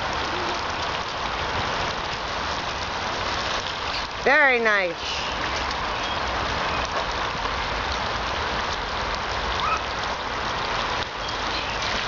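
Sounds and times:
water spraying on plastic sheet: 8.4s - 12.0s.

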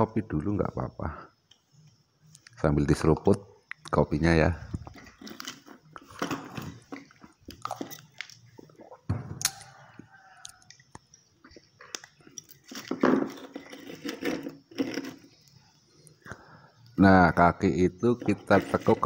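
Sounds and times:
handling clicks and scrapes: 12.3s - 15.5s, 18.0s - 19.0s.

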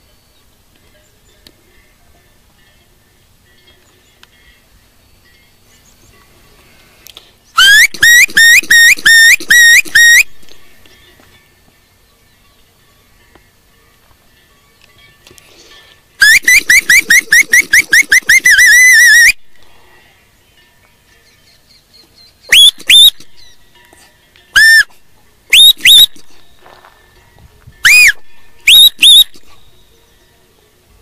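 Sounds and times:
herding whistles: 7.6s - 10.4s, 16.2s - 19.4s, 22.0s - 23.6s, 24.5s - 26.4s, 27.8s - 29.9s.

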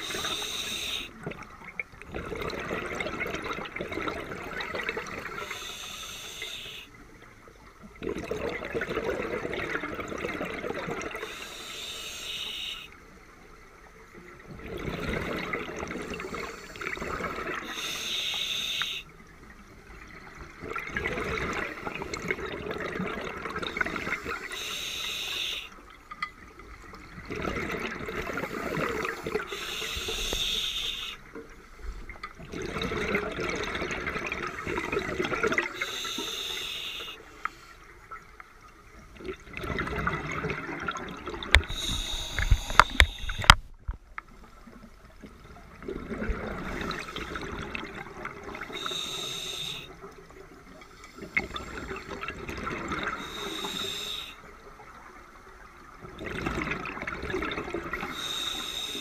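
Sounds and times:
regulator inhalation hiss: 0.0s - 1.1s, 5.4s - 6.9s, 11.2s - 12.9s, 17.6s - 19.1s, 24.0s - 25.8s, 28.5s - 31.2s, 35.8s - 37.8s, 41.6s - 43.5s, 48.7s - 50.0s, 53.2s - 54.4s, 58.0s - 59.0s
exhaust bubbling underwater: 27.2s - 31.0s, 32.4s - 35.8s.

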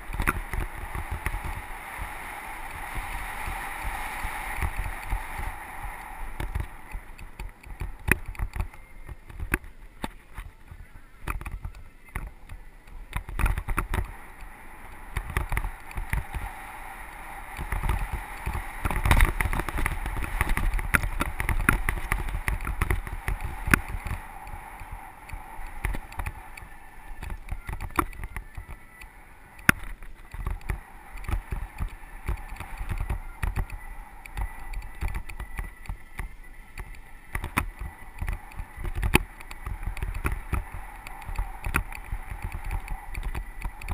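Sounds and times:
wind on camera: 0.0s - 43.9s
bike rattling over bumps: 13.0s - 28.8s.

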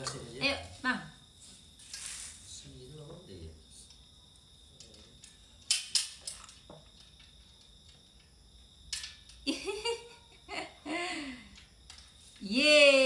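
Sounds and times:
metal tubes knocking and clicking: 4.8s - 9.5s
person making laughter-like sounds: 9.5s - 11.5s.

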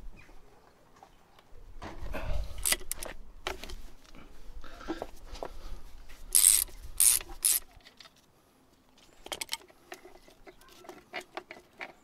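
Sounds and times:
ratchet rasping: 2.6s - 3.1s, 6.3s - 7.7s.

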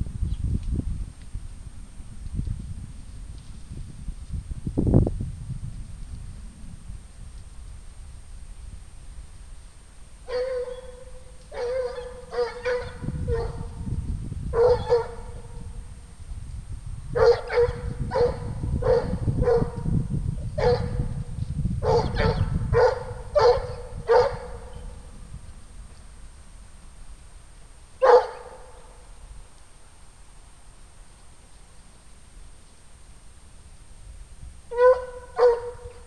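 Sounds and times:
hound baying: 10.3s - 13.8s, 14.6s - 15.6s, 17.2s - 19.8s, 21.8s - 24.8s, 28.0s - 28.8s, 34.7s - 36.0s.

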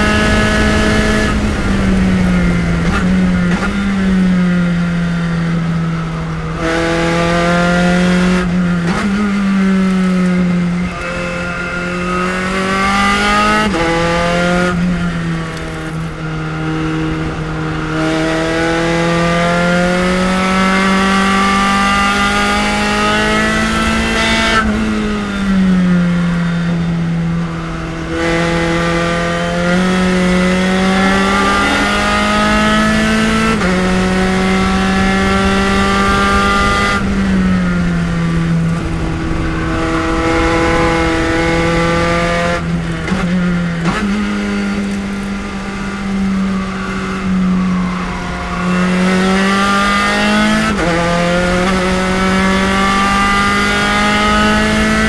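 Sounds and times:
racing car engine: 0.0s - 55.0s.

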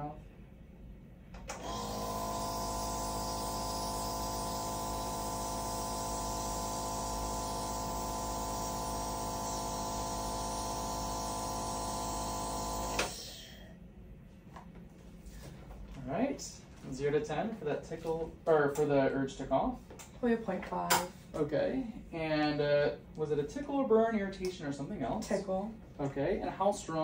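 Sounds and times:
nebulizer humming: 1.5s - 13.6s.

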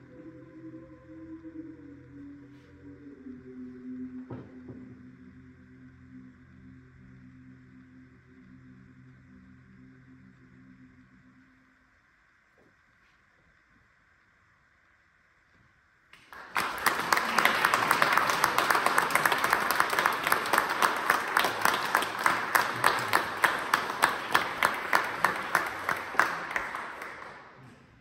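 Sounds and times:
audience applause: 16.2s - 27.8s.

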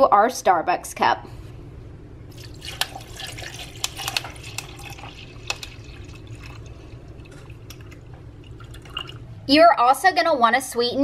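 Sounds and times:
liquid pouring over ice: 2.3s - 9.3s.

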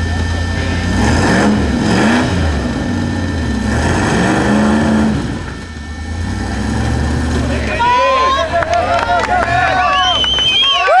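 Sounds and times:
engine revving in bursts: 0.0s - 7.9s.

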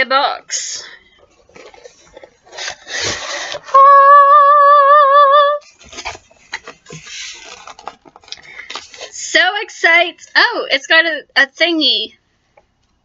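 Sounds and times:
papery rustling: 1.1s - 3.7s, 5.6s - 9.2s.

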